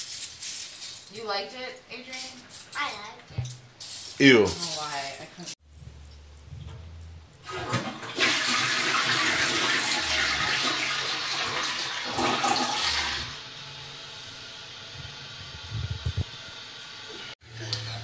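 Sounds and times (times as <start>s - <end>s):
toilet flushing: 7.4s - 15.4s.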